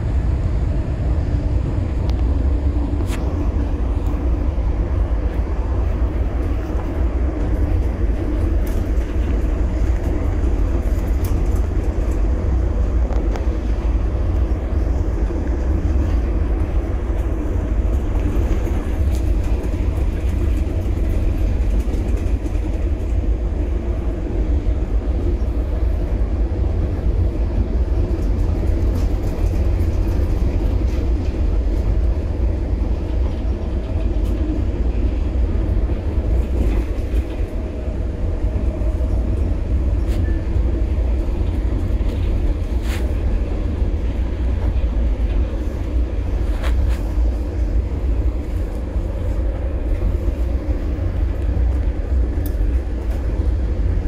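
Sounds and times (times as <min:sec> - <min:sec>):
train rumbling on rails: 0:00.0 - 0:54.0.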